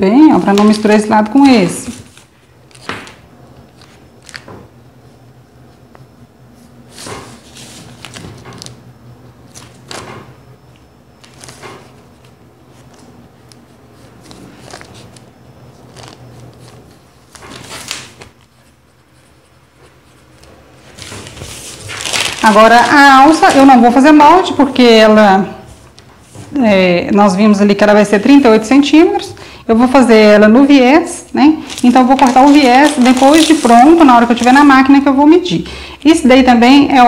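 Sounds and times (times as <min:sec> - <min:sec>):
paper being handled: 0:00.3 - 0:04.5, 0:06.9 - 0:08.8, 0:11.2 - 0:23.9, 0:31.6 - 0:35.1.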